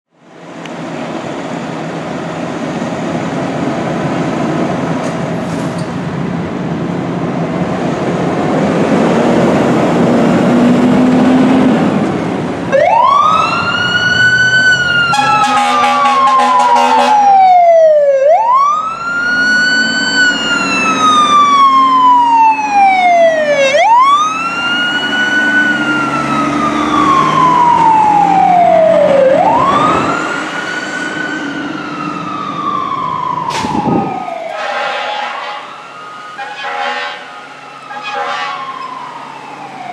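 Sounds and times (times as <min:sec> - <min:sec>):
diesel engine revving: 0:00.6 - 0:17.3, 0:18.8 - 0:35.2
air horn blasts: 0:15.1 - 0:17.2, 0:34.5 - 0:35.7, 0:36.4 - 0:37.3, 0:37.9 - 0:38.7.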